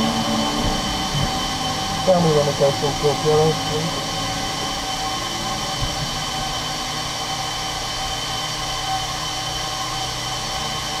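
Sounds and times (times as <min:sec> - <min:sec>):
whining tones: 0:00.0 - 0:11.0.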